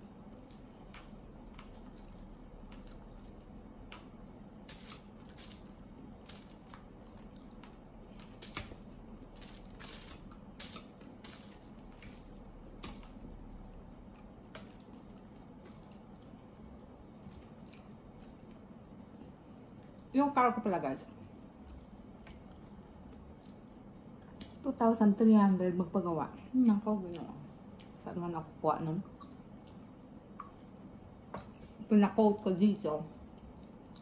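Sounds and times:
faint steady hum: 0.0s - 34.0s
chewing: 17.2s - 18.6s, 21.6s - 24.5s.

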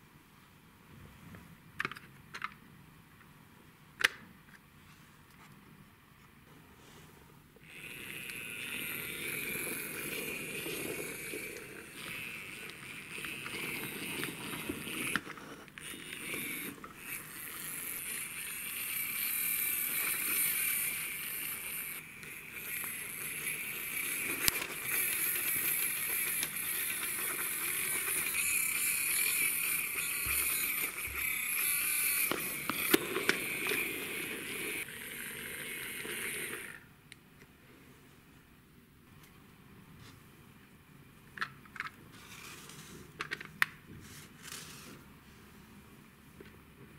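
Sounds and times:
plastic toy wheels rolling: 7.6s - 36.9s.

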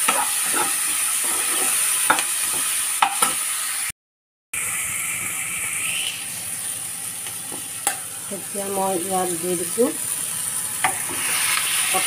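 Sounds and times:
spatula scraping and tapping pan: 0.0s - 3.4s, 10.8s - 12.0s
vegetables sizzling in frying pan: 0.0s - 3.9s, 4.6s - 12.0s.

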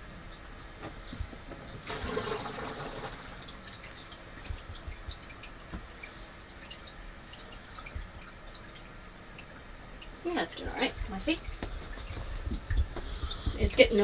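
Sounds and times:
water dripping and trickling: 0.0s - 14.0s
water splash: 1.8s - 3.6s.

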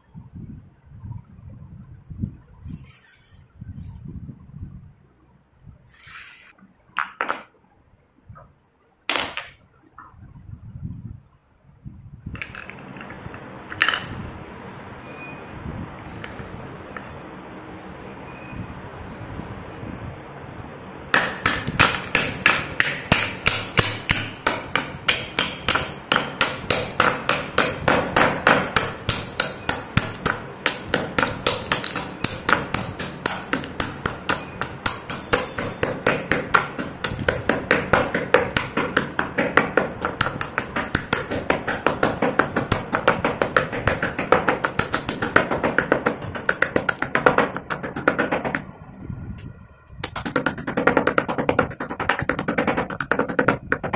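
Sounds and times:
stone pestle pounding clay cups: 21.2s - 48.6s, 50.0s - 53.9s.

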